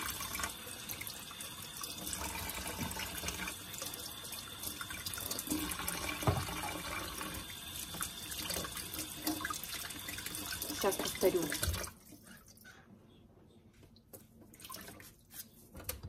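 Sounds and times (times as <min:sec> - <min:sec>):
kitchen tap running into sink: 0:00.0 - 0:12.2
soft knocks in sink: 0:06.2 - 0:06.5.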